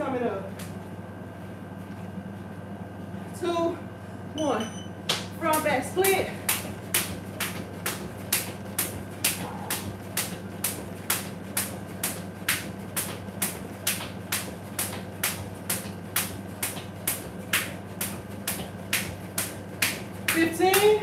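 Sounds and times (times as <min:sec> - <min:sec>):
jump rope slapping tile floor: 0:05.1 - 0:21.0.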